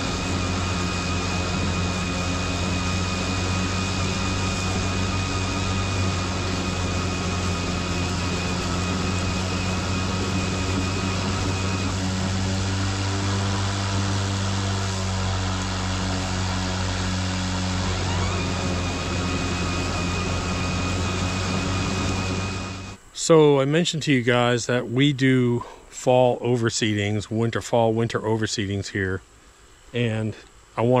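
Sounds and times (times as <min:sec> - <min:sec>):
electric lawn mower running: 0:00.0 - 0:23.0
thin high whine: 0:00.0 - 0:31.0.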